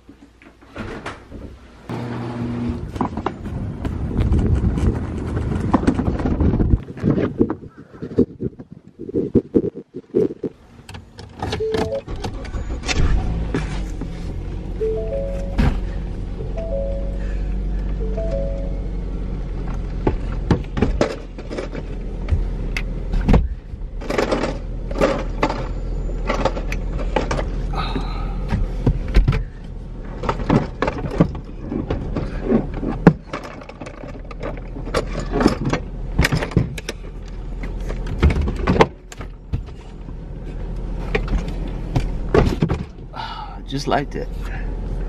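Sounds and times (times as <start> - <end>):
wheelchair parts clicking and knocking: 24.0 - 39.8.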